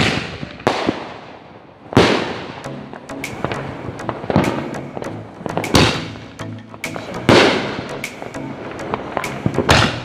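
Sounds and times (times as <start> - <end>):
fireworks bangs: 0.0 - 6.3, 6.9 - 10.0
firework crackles: 0.0 - 10.0.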